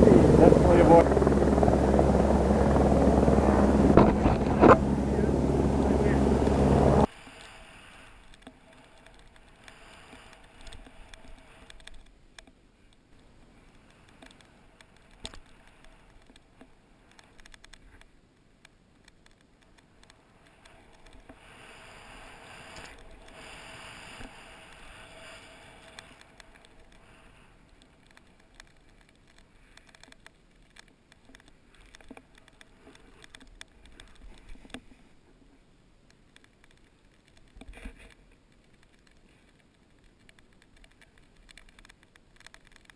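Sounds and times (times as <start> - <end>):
snowboard hissing through snow: 7.0 - 8.2, 9.7 - 10.4, 21.4 - 26.2.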